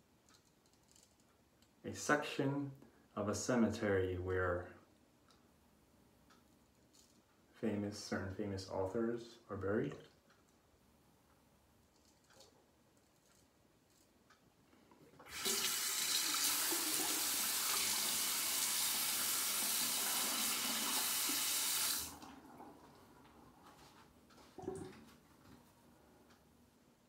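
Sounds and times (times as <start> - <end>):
sink tap running water: 15.2 - 22.8.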